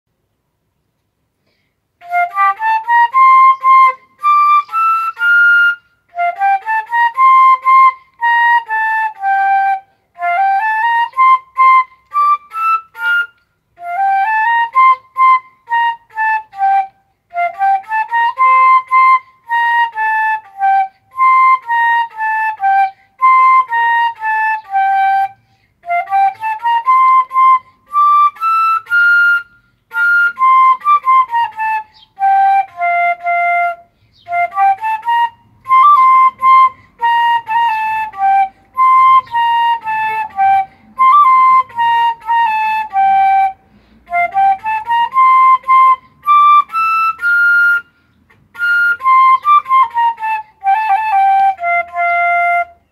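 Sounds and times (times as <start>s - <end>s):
solo flute melody: 1.5s - 52.9s
player breathing: 43.6s - 44.1s.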